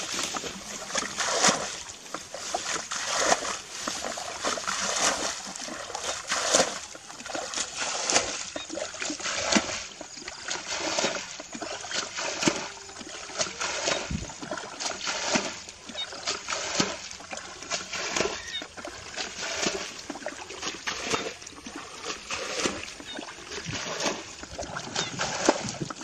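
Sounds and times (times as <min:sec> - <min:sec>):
splashing in shallow water: 0:00.0 - 0:26.0.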